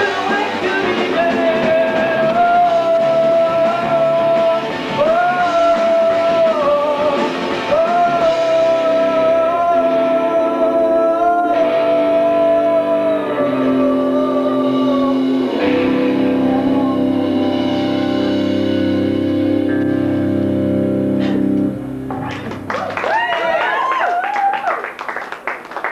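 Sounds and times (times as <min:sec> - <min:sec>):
man singing: 0:00.0 - 0:18.0
electric guitar: 0:00.0 - 0:24.6
drums: 0:00.0 - 0:25.9.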